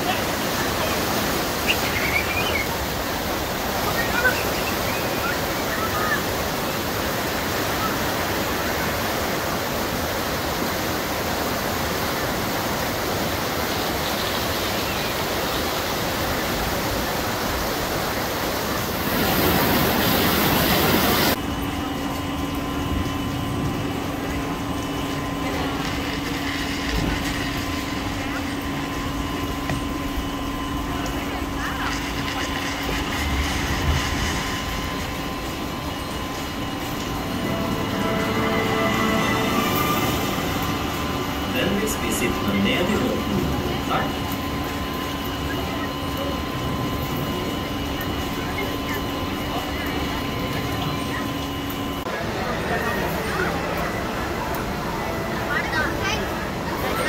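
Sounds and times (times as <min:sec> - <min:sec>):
white water rushing: 0:00.0 - 0:21.4, 0:23.8 - 0:50.7
low mechanical hum: 0:00.0 - 0:57.0.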